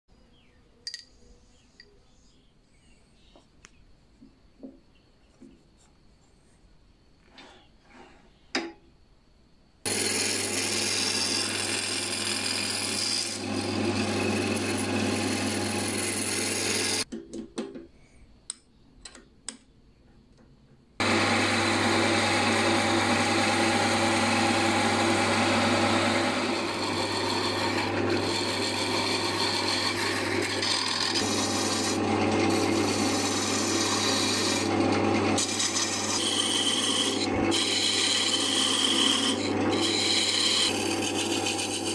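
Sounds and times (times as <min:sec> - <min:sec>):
lathe motor humming: 0:09.9 - 0:17.0, 0:21.0 - 0:41.9
tools shaving spinning wood: 0:09.9 - 0:17.1, 0:21.0 - 0:41.9.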